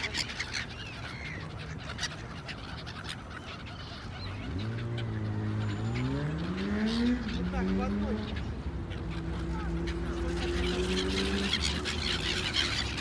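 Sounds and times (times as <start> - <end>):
gulls calling: 0.0 - 13.0
low engine hum: 3.3 - 13.0.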